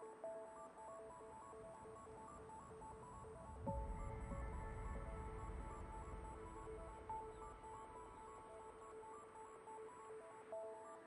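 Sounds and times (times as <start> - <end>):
faint background music: 0.0 - 11.0.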